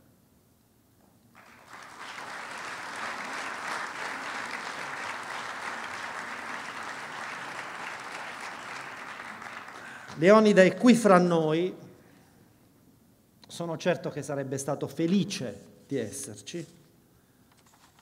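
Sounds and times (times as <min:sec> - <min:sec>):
audience applauding: 0:01.3 - 0:10.5.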